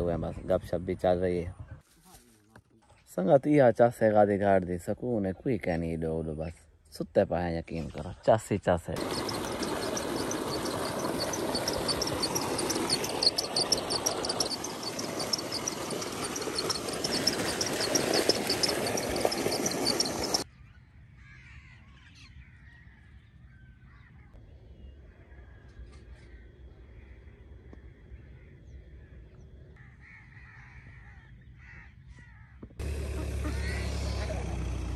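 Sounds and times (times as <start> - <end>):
faint bird calls: 9.0 - 20.4
high-pitched pulsing: 9.0 - 20.4
water gushing into pool: 9.0 - 20.4.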